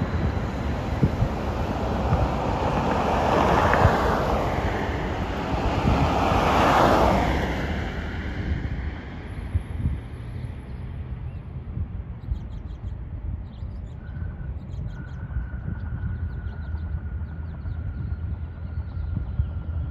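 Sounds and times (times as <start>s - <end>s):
distant jet noise: 0.0s - 19.9s
wind rumbling on microphone: 0.0s - 19.9s
faint bird chirps: 12.2s - 19.6s.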